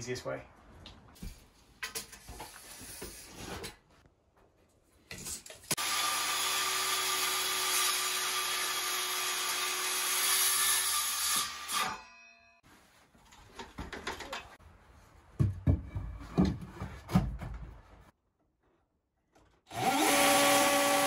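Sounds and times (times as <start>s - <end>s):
circular saw cutting timber: 5.7s - 12.0s, 19.7s - 21.0s.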